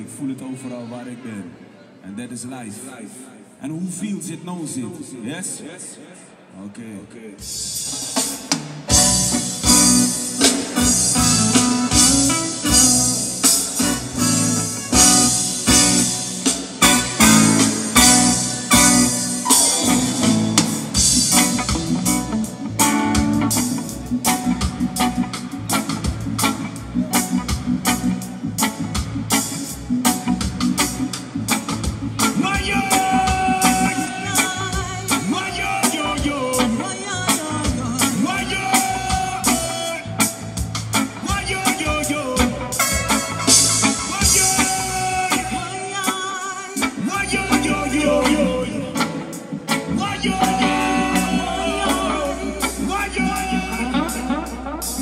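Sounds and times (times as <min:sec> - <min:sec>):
live reggae band playing: 0:07.3 - 0:55.0
drum kit hits: 0:07.4 - 0:26.6
keyboard and guitar chords: 0:07.4 - 0:55.0
bass guitar: 0:07.5 - 0:55.0
man singing into a microphone: 0:32.3 - 0:40.4, 0:41.2 - 0:42.9, 0:44.0 - 0:55.0.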